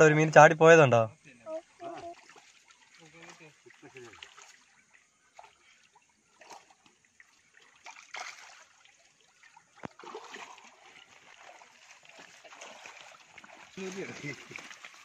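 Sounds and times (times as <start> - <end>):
water splashing and trickling: 0.0 - 15.0.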